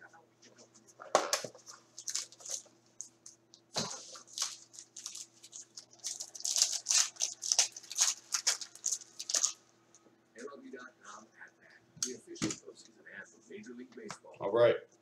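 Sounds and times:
cardboard and wrapper tearing: 3.8s - 9.6s.

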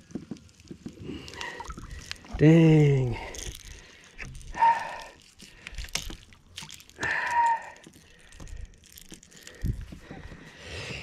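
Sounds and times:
wet weeds rustling and dripping: 0.0s - 10.6s
small splashes: 1.0s - 2.4s, 3.0s - 9.6s.

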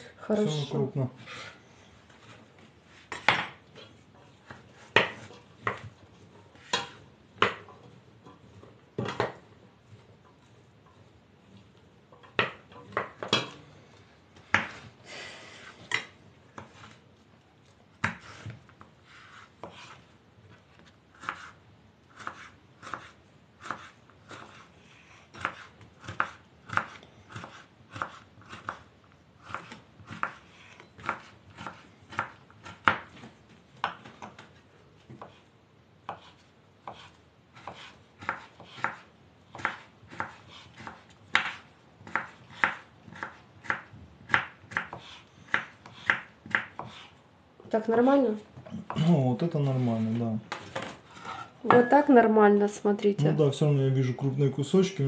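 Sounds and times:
knife chopping on wooden board: 3.1s - 3.6s, 4.4s - 6.0s, 6.6s - 7.7s, 12.3s - 13.6s, 14.4s - 14.8s, 18.0s - 18.5s, 21.2s - 21.6s, 22.2s - 24.7s, 25.3s - 34.4s, 36.0s - 47.1s.

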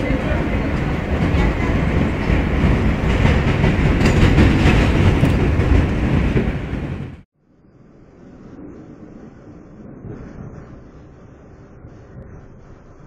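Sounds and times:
wheels clacking over rail joints: 0.0s - 7.1s
train rumbling on rails: 0.0s - 13.0s.

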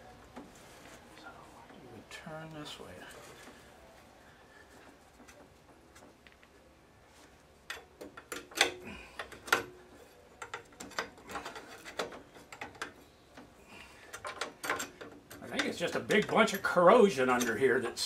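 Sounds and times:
metal linkage clicking and scraping: 7.6s - 17.8s.

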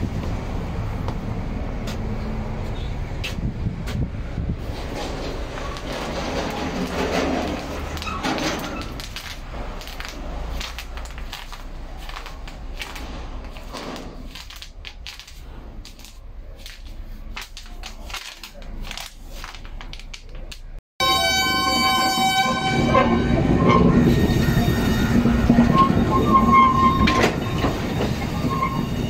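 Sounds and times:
footsteps on plastic sheeting: 4.7s - 20.2s.

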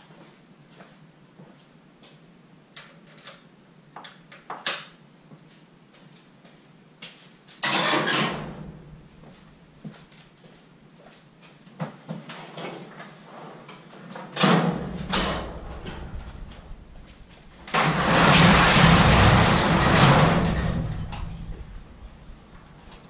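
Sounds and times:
garage door rolling up: 7.6s - 9.2s, 14.0s - 23.0s.

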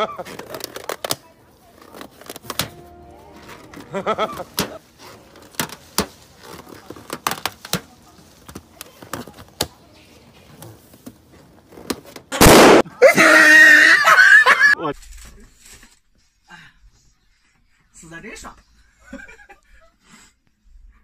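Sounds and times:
balloon bursting: 12.3s - 12.8s.

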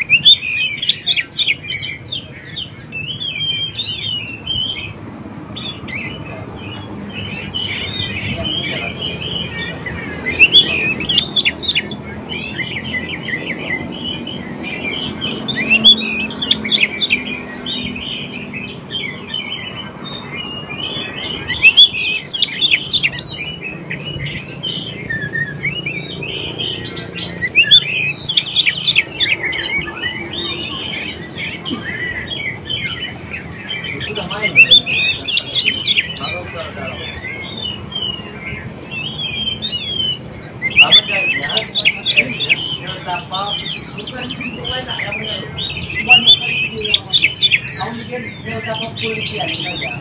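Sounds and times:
songbird warbling: 0.0s - 50.0s.

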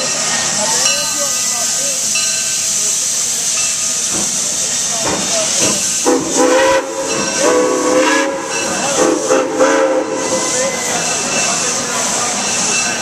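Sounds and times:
steam hissing: 0.0s - 13.0s
steam whistle blasts: 6.0s - 10.6s.

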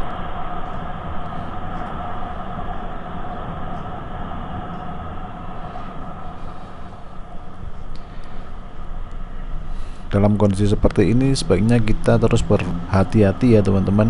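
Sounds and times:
motorcycle riding rumble: 10.2s - 14.0s.

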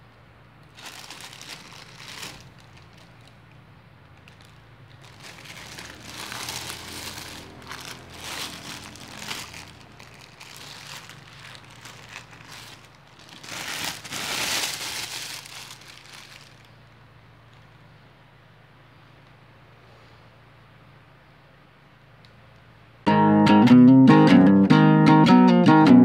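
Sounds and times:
plastic bags crinkling: 0.6s - 17.7s.

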